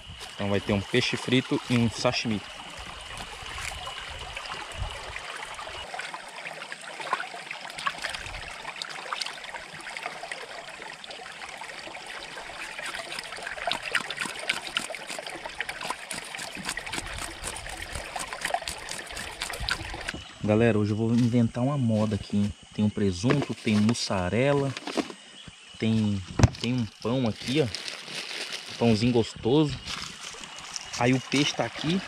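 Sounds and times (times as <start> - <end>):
river water trickling: 0.1 - 20.4, 26.6 - 29.2, 29.8 - 32.0
small water splashes: 1.0 - 20.2, 29.8 - 32.0.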